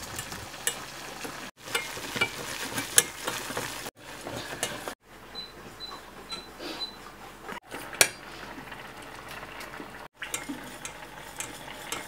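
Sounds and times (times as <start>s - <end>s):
whisk ticking against saucepan: 10.2s - 12.0s.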